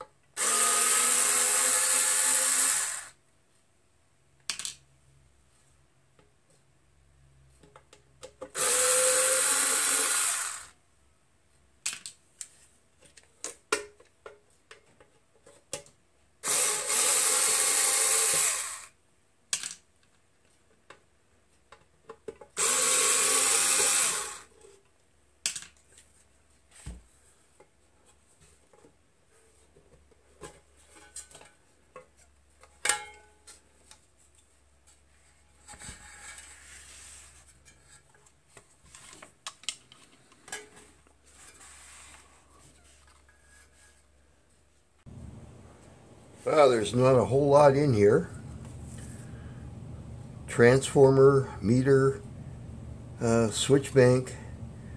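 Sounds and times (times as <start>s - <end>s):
cordless screwdriver running: 0.4s - 3.1s, 8.6s - 10.7s, 16.4s - 18.9s, 22.6s - 24.5s.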